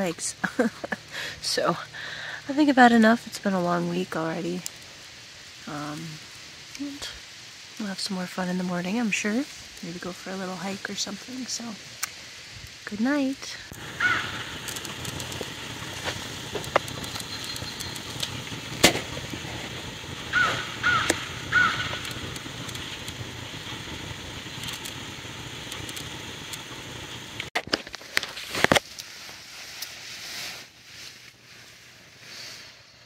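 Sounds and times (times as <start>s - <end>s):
loud snaps: 11.9s - 12.2s, 13.7s - 19.4s, 20.3s - 23.2s
distant highway traffic hum: 13.7s - 25.1s
sharp clicks: 14.6s - 19.2s, 21.0s - 23.2s, 25.7s - 26.6s.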